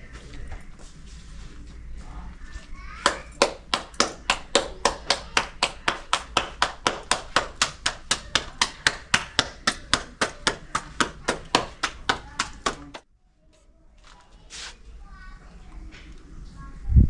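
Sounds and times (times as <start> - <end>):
hands slapping dough: 3.0 - 13.0.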